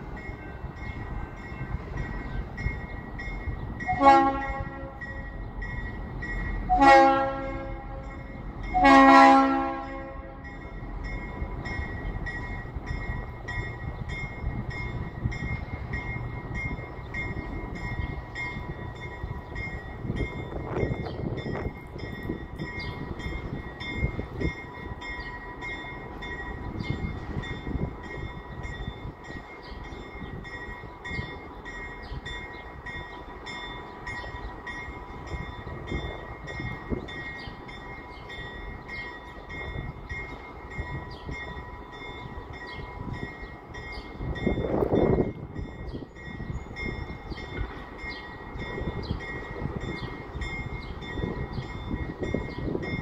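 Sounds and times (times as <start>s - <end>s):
locomotive rumbling: 0.0s - 53.0s
locomotive air horn blasts: 3.9s - 5.2s, 6.7s - 10.5s.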